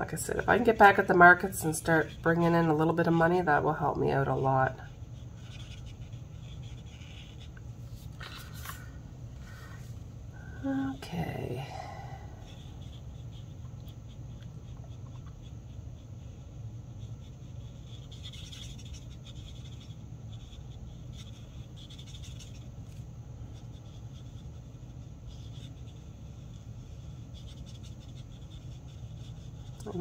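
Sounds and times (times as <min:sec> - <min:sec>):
marker scratching on paper: 0:00.0 - 0:08.9, 0:12.4 - 0:30.0.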